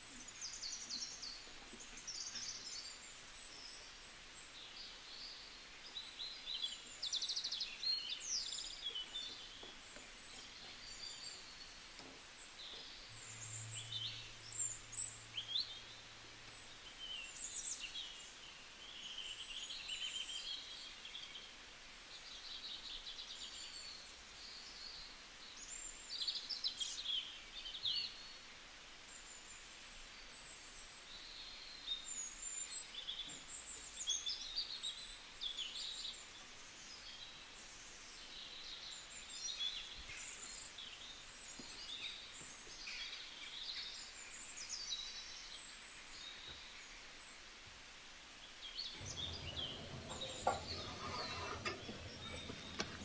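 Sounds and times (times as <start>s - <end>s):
faint steady hiss: 0.0s - 53.0s
birds chirping and whistling: 12.7s - 17.7s, 49.0s - 53.0s
low hum: 12.9s - 17.0s, 49.0s - 53.0s.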